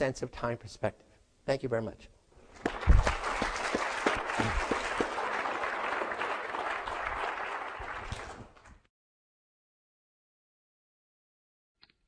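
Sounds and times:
audience applauding: 2.5s - 8.8s.

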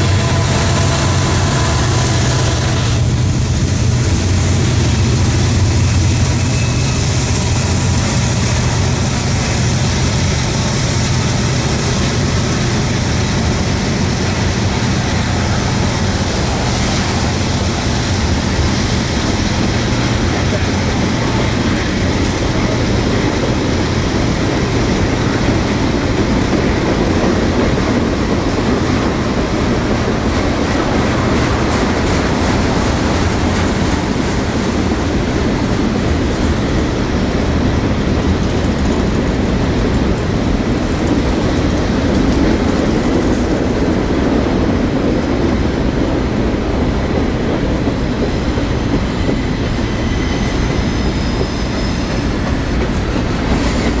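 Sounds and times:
train wheels rumbling on rails: 0.0s - 54.0s
wheels clicking over rail joints: 38.2s - 44.0s.

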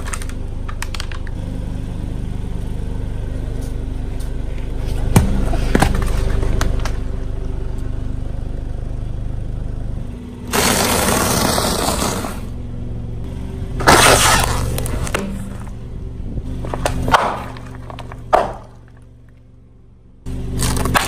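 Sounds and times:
car engine running low: 0.0s - 21.0s
tyre crushing brittle object: 13.8s - 15.7s, 16.6s - 19.0s, 20.5s - 21.0s.

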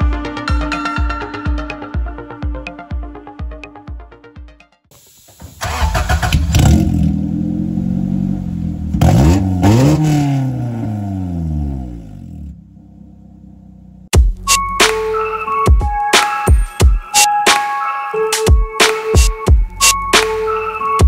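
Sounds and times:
music: 0.0s - 4.9s, 14.1s - 21.0s
car engine revving: 5.6s - 14.1s
engine idling: 12.3s - 14.1s.

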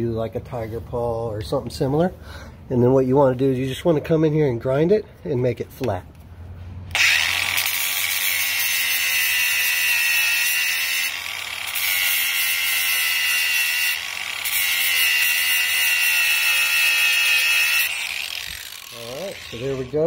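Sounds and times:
angle grinder grinding steel: 6.9s - 20.0s.

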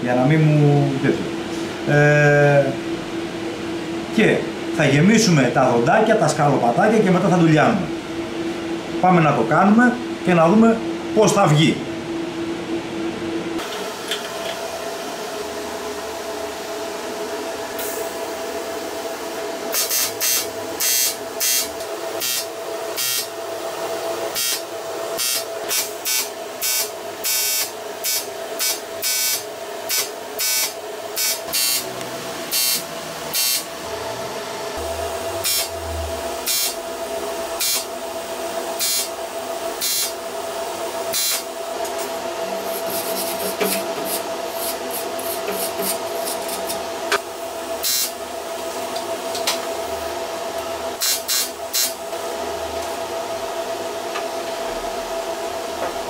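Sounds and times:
steady hum: 0.0s - 56.0s
welding arc buzzing: 19.7s - 23.4s, 24.3s - 38.0s, 38.7s - 39.2s, 39.8s - 40.2s, 41.1s - 47.2s, 47.8s - 48.2s, 51.0s - 52.1s.

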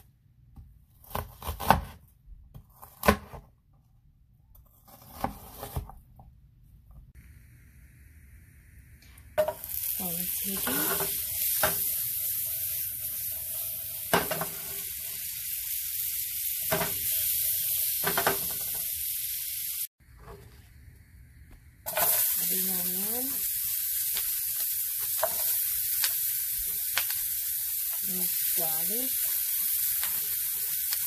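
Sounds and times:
butter sizzling in a frying pan: 7.6s - 19.9s, 21.9s - 31.0s.

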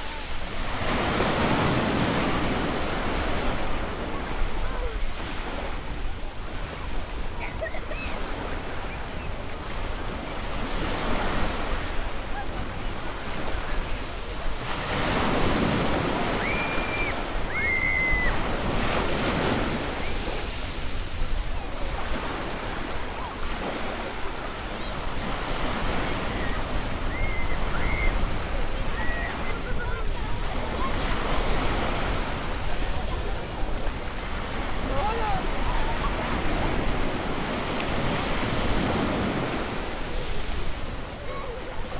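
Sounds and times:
ocean surf on beach: 0.0s - 41.9s
children calling out: 16.3s - 18.5s.

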